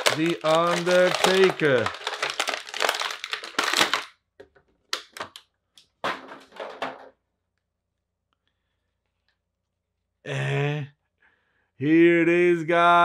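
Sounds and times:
plastic bag crinkling: 0:00.0 - 0:04.2.

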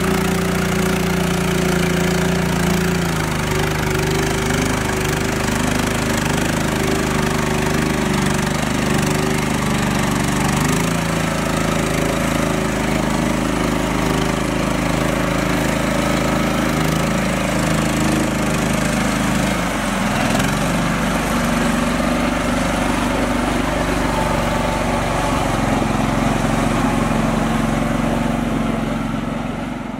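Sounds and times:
tractor engine running: 0:00.0 - 0:29.9
wheels splashing water: 0:00.0 - 0:29.9.

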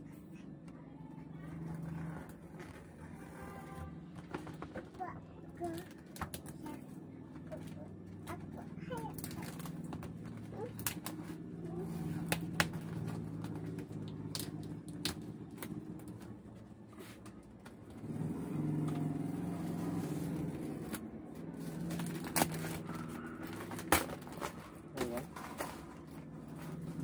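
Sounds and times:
low motor hum: 0:00.0 - 0:27.0
packing tape and cardboard snapping: 0:07.5 - 0:16.3, 0:17.0 - 0:27.0.

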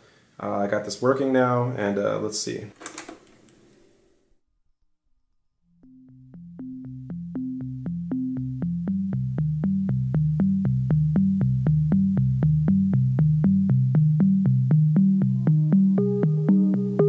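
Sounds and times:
synthesizer music with clicking beat: 0:05.8 - 0:17.0.

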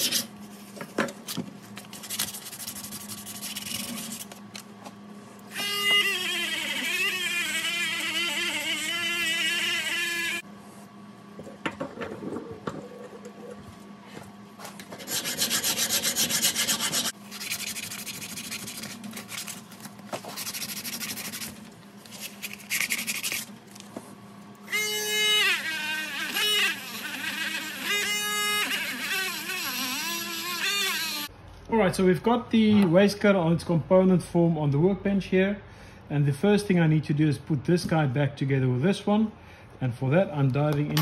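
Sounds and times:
rotary tool whining: 0:05.5 - 0:10.5, 0:24.7 - 0:31.3.

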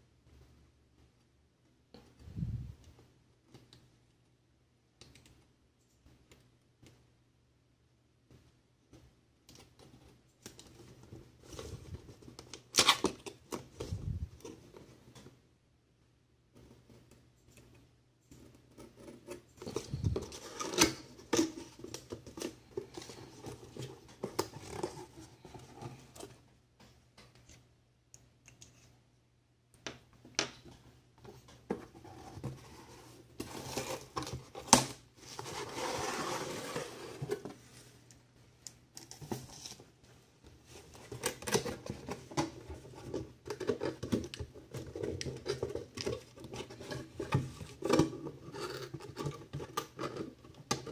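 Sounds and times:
cardboard sliding and rustling: 0:31.8 - 0:38.0.

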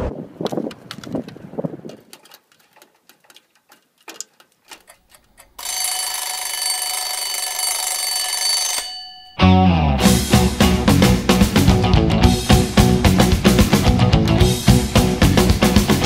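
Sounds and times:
alarm clock buzzing: 0:05.4 - 0:09.5
rock music with electric guitar: 0:09.4 - 0:16.0.

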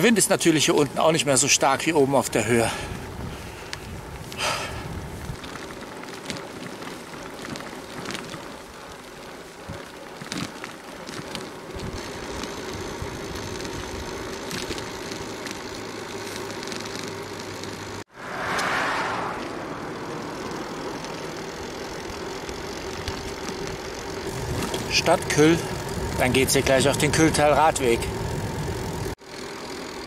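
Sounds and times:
bicycle tyres rolling: 0:00.0 - 0:30.0
wind on microphone: 0:02.9 - 0:05.4.

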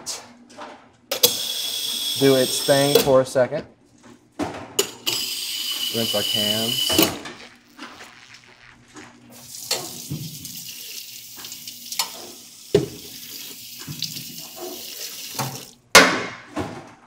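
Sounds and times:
tap running into sink: 0:09.6 - 0:15.8.

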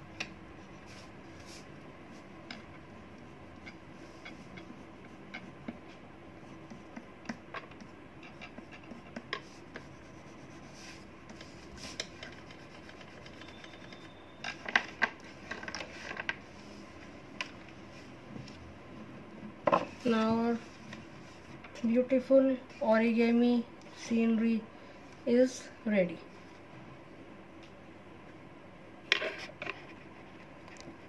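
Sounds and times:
pastel scratching on paper: 0:03.6 - 0:14.2.

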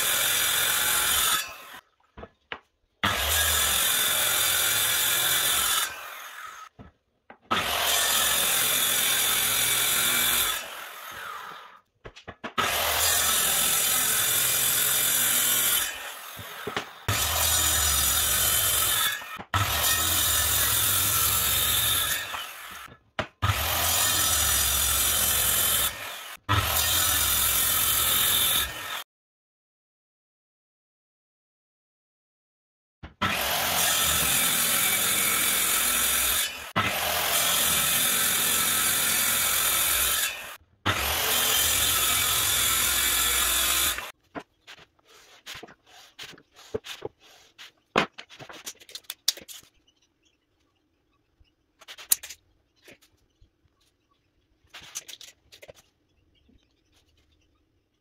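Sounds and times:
circular saw cutting board: 0:33.0 - 0:50.0.

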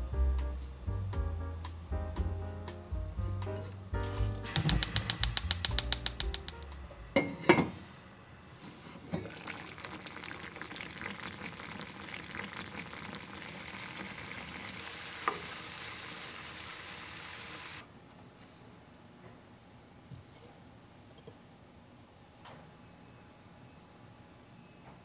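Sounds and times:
sauce bubbling and sizzling in pan: 0:04.4 - 0:06.7, 0:09.0 - 0:17.8.

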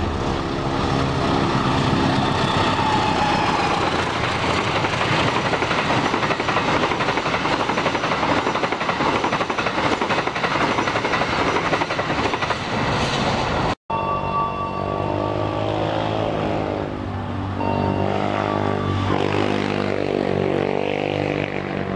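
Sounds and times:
train wheels rushing on rail: 0:00.0 - 0:13.8
clatter over track: 0:00.9 - 0:13.5.

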